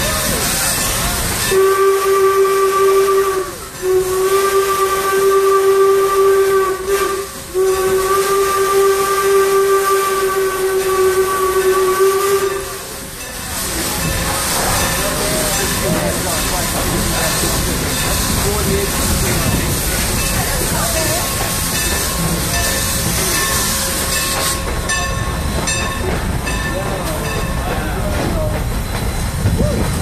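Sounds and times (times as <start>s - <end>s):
hiss of escaping steam: 0.0s - 30.0s
steam whistle blasts: 1.4s - 13.0s.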